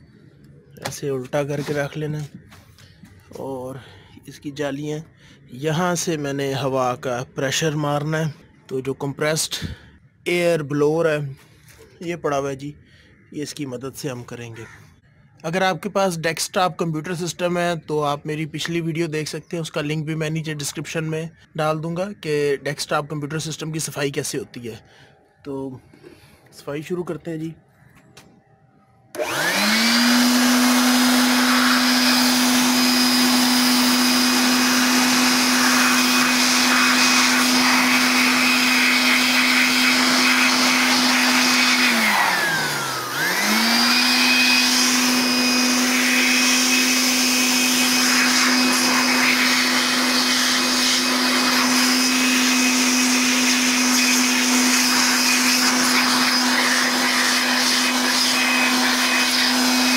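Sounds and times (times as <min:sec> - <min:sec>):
electric air blower motor hum: 0:29.1 - 0:59.9.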